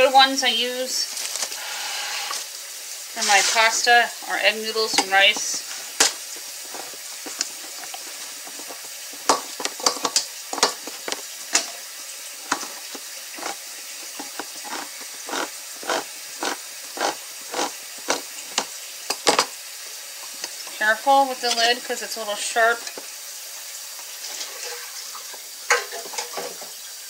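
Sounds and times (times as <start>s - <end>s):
can opener clicking and scraping: 4.8s - 19.6s.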